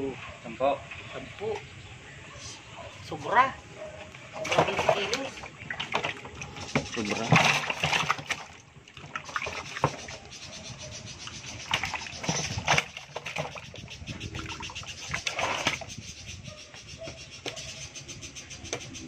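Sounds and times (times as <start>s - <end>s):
fish thrashing in water: 4.2s - 10.3s, 11.3s - 15.9s.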